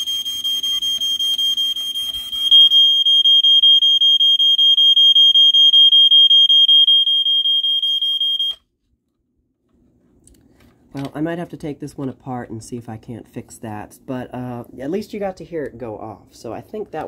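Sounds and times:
smoke detector pulsing beeps: 0:00.0 - 0:08.6.

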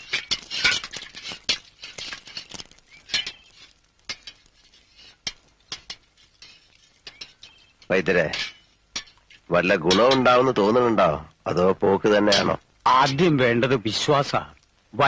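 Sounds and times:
metal ladle scraping in brass vessel: 0:00.0 - 0:10.4.

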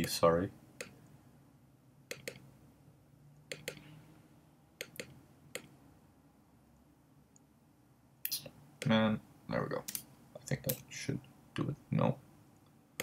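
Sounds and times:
computer mouse clicking: 0:02.1 - 0:02.5, 0:03.5 - 0:03.9, 0:04.8 - 0:05.7.

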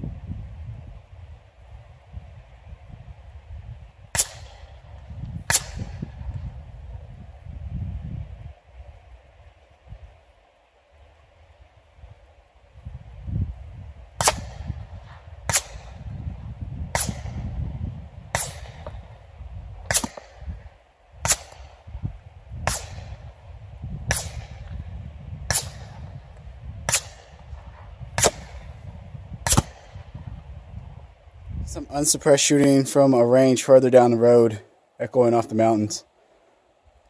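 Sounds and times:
suppressed gunshots: 0:04.1 - 0:06.5, 0:14.2 - 0:19.2, 0:19.8 - 0:21.9, 0:22.6 - 0:23.4, 0:24.0 - 0:30.4.

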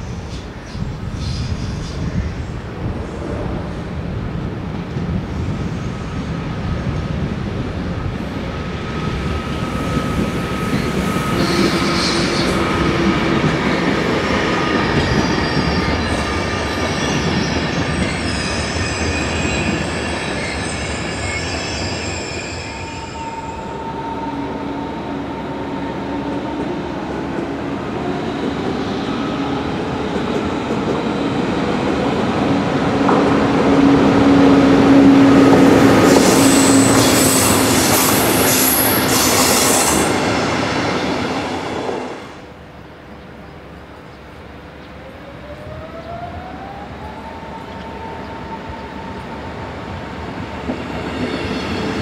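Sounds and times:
train coaches rolling past: 0:00.0 - 0:52.0
train passing close: 0:00.0 - 0:52.0
wheel squeal: 0:14.6 - 0:23.8.

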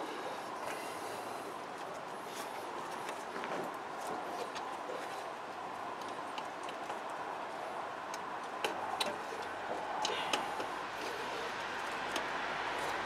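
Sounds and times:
light clicks and taps: 0:06.0 - 0:13.0.

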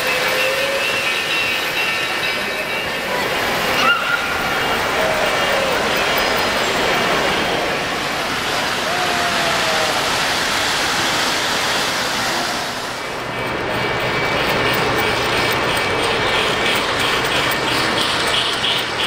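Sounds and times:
toy train motors whirring on track: 0:13.5 - 0:19.0.

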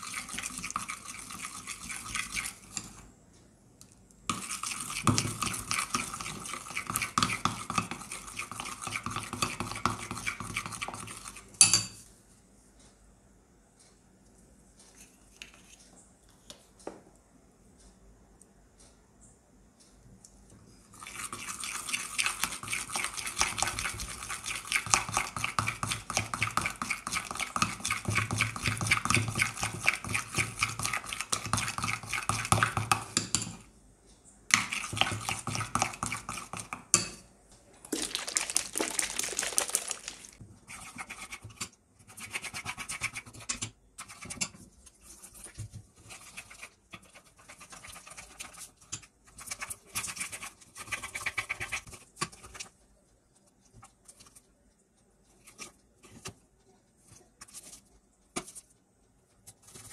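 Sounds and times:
spoon scraping glass bowl: 0:00.0 - 0:03.0, 0:04.3 - 0:11.9.

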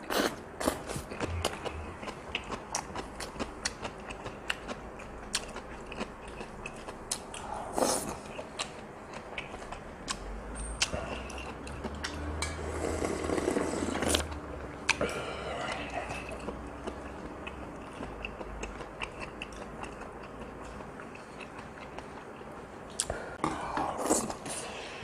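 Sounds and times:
person chewing and smacking: 0:00.0 - 0:12.2, 0:14.1 - 0:24.5
slurping broth from a bowl: 0:12.6 - 0:14.3
slurping noodles: 0:12.6 - 0:14.3.

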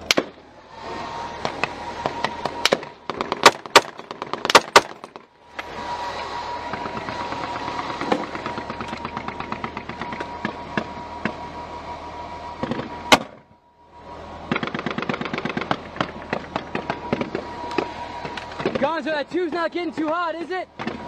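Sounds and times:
very loud crack: 0:02.5 - 0:05.3.

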